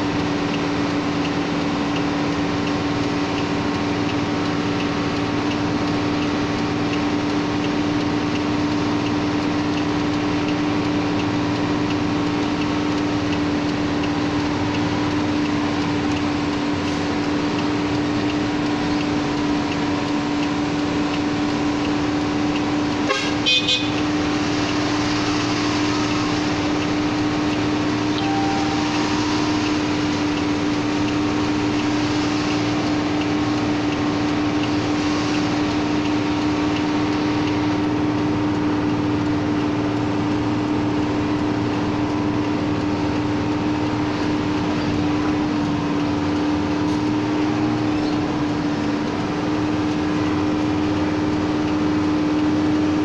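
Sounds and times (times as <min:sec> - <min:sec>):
diesel engine droning: 0:00.0 - 0:53.0
horn toots: 0:23.0 - 0:24.0, 0:28.2 - 0:30.0.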